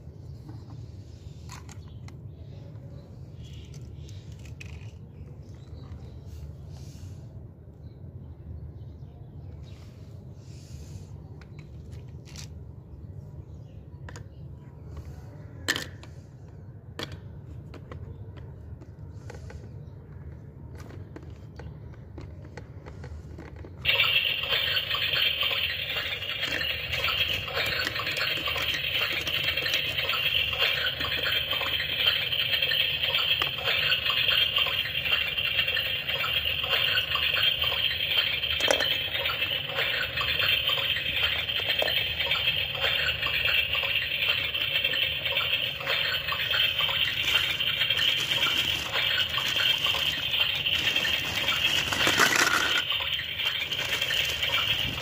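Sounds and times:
toy stove electronic hiss: 46.8 - 52.8.

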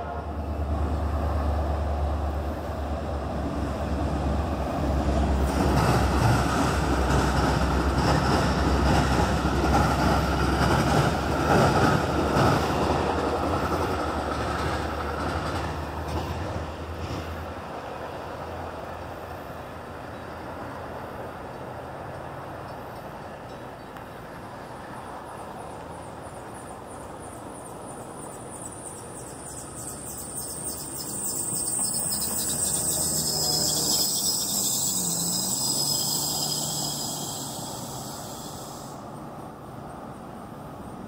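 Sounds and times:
cars driving over railroad tracks: 0.5 - 41.0
vehicle tyre hiss passing: 29.8 - 39.7.

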